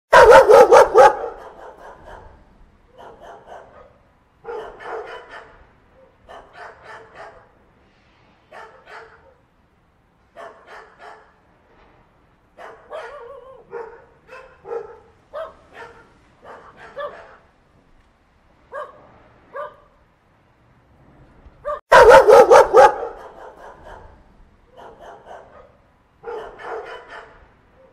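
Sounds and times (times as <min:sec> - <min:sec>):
puppy yapping: 0:00.1 - 0:02.3, 0:12.6 - 0:17.4, 0:21.7 - 0:24.1, 0:24.8 - 0:27.9.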